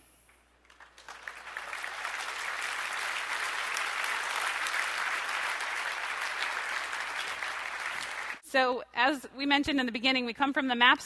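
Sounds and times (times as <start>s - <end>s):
audience applauding: 0.6s - 8.4s.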